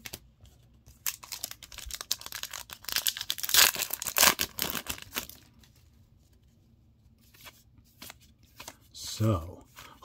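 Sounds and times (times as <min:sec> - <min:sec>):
foil wrapper crinkling: 0:01.0 - 0:05.5.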